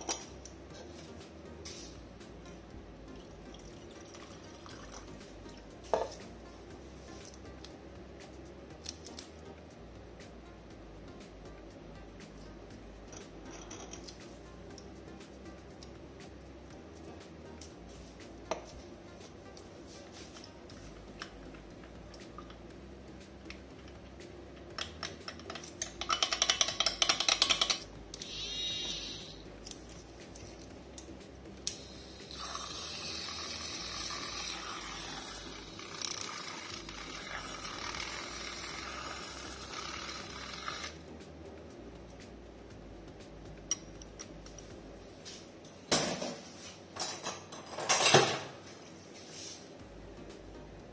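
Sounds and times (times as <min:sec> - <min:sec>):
background music: 0:00.0 - 0:50.9
milk frother whirring: 0:32.2 - 0:41.0.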